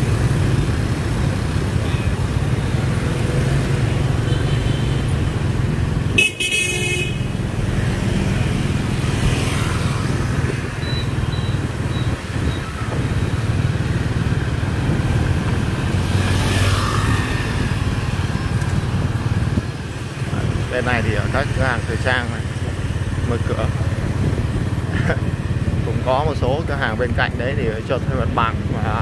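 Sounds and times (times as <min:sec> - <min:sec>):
motorbike and car traffic: 0:00.0 - 0:29.0
horn honk: 0:06.1 - 0:07.4.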